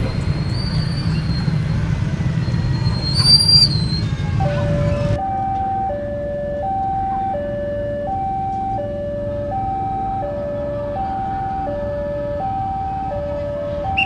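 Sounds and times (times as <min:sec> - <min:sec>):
level crossing two-tone alarm: 0:04.4 - 0:14.0.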